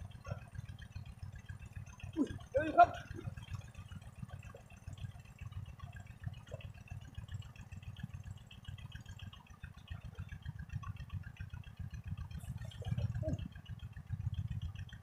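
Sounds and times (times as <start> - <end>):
low fluttering rumble: 2.2 - 15.0.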